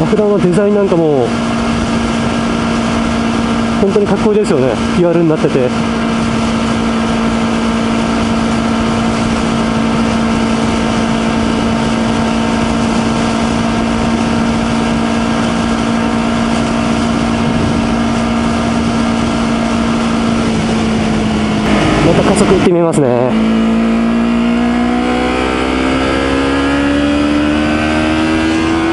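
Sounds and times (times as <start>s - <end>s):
motorcycle engine running: 0.0s - 28.9s
wind rushing: 5.7s - 26.7s.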